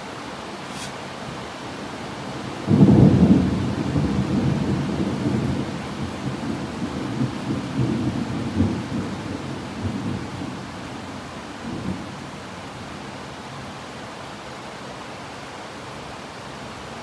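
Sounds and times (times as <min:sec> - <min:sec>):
heavy rain hissing: 0:00.0 - 0:15.2
thunder rumbling: 0:02.6 - 0:12.1.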